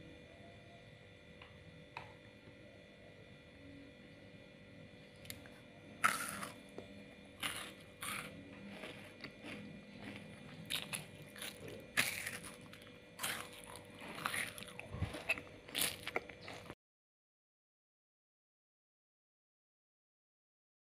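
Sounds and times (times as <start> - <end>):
crunchy wafer chewing: 5.1 - 16.8.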